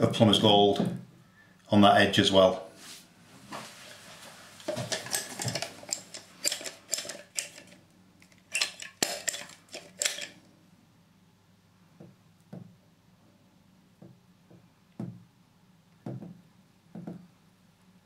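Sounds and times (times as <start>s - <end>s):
hard plastic clattering: 4.7s - 10.4s.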